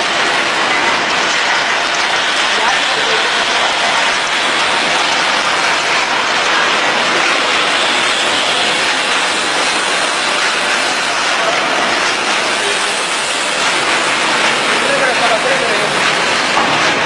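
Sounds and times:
production line machinery running: 0:00.0 - 0:17.0.

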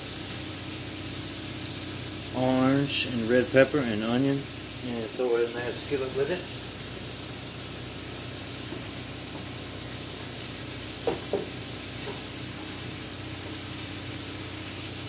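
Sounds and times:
vegetables sizzling in oil: 0:00.0 - 0:15.0
sharp knocks: 0:11.0 - 0:11.5.

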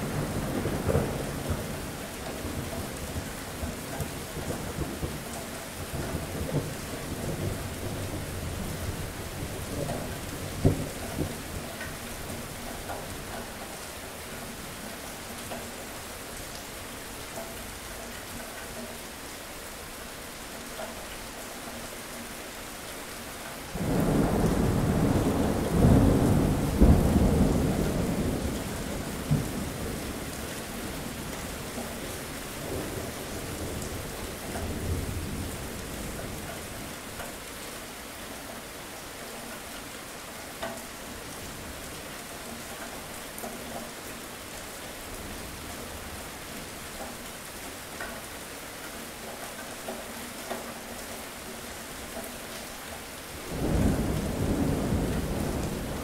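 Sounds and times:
steady rain: 0:00.0 - 0:56.0
thunder rumbling: 0:23.7 - 0:31.6, 0:53.5 - 0:56.0.

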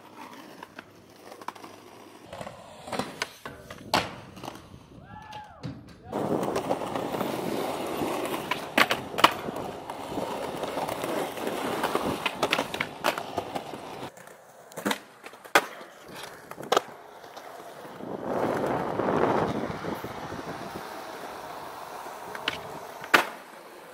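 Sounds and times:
skateboard clacking on ground: 0:00.0 - 0:23.9
skateboard wheels rolling on asphalt: 0:00.0 - 0:23.9.

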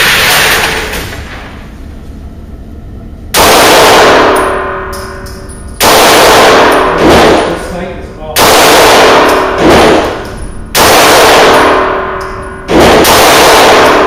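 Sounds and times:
pistol shots echoing: 0:03.4 - 0:05.2, 0:05.8 - 0:07.8, 0:08.4 - 0:14.0.

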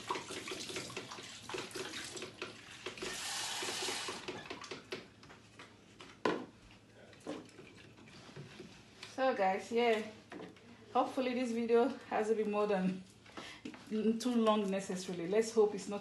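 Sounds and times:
water splashing in a steel sink: 0:00.0 - 0:04.9.

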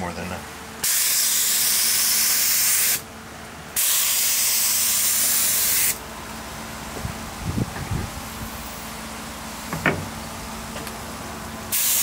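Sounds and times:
spray gun hissing: 0:00.8 - 0:03.0, 0:03.8 - 0:06.0, 0:11.7 - 0:12.0.

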